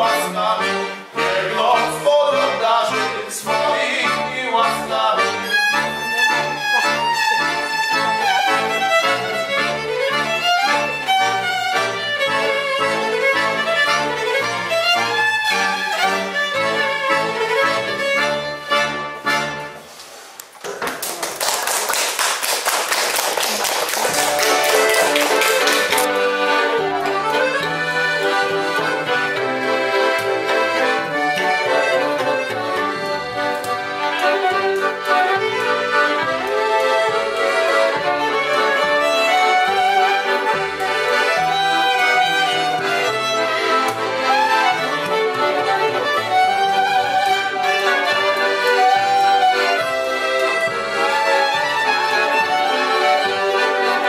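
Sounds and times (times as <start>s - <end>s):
folk band playing: 0.0s - 20.6s, 23.3s - 54.0s
audience applauding: 20.6s - 26.1s.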